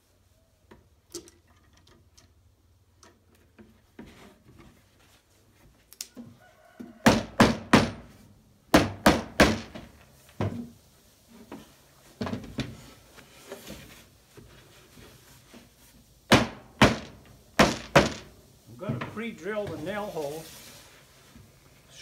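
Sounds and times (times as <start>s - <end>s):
sharp knocks on wooden box: 8.7s - 10.6s, 16.3s - 18.3s.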